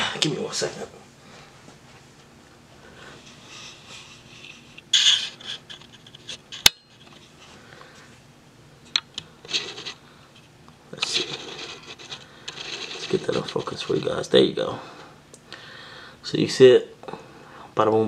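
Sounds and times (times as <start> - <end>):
hand rubbing and scraping on countertop: 3.0 - 6.5, 9.5 - 10.0, 11.0 - 14.2.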